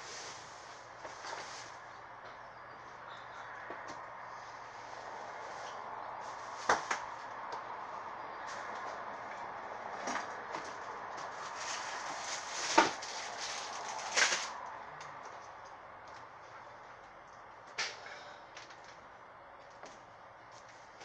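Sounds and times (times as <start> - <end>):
rustling of belongings: 0.0 - 2.0, 8.4 - 16.3.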